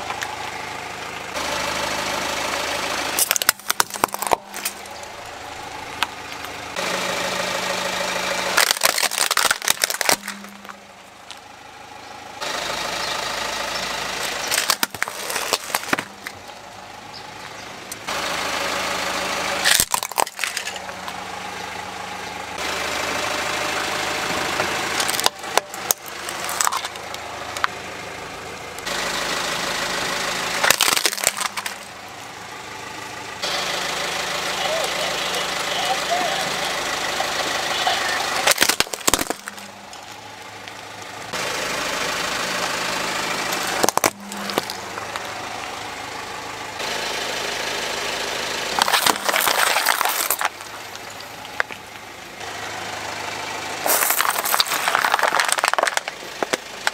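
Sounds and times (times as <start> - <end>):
car engine running: 0.0 - 56.9
plastic toys crushed by car tyre: 2.8 - 7.0, 8.2 - 11.5, 14.2 - 16.5, 19.4 - 21.3, 24.6 - 27.8, 30.5 - 32.2, 37.4 - 41.0, 43.4 - 45.4, 48.7 - 52.0, 53.8 - 56.9.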